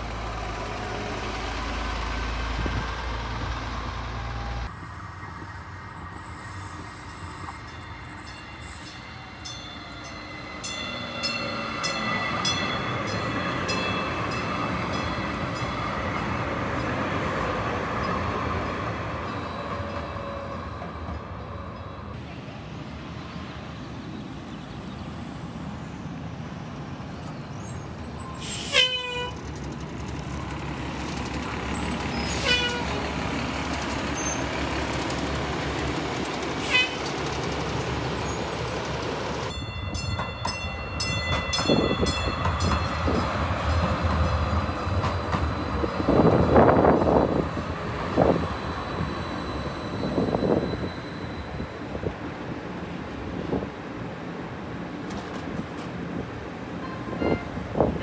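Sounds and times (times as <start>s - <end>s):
bus engine rumbling: 0.0s - 19.5s, 20.8s - 40.0s, 40.6s - 58.0s
short toots or brake squeals: 48.4s - 51.9s.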